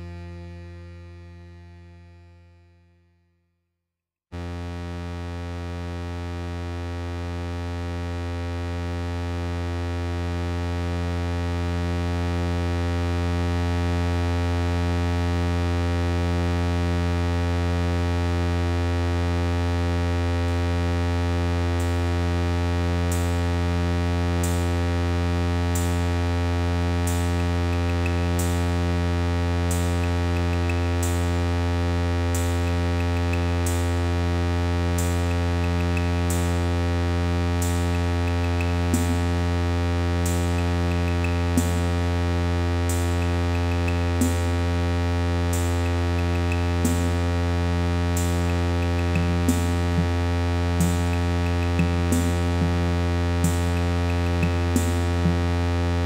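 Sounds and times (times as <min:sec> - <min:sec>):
low synthesizer drone: 0:04.4 - 0:56.0
high repeating tick: 0:48.2 - 0:50.2, 0:50.8 - 0:55.4.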